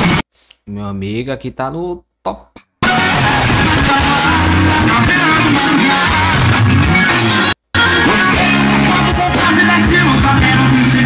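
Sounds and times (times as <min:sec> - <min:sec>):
music with singing and heavy bass: 0:00.0 - 0:00.2, 0:02.8 - 0:11.0.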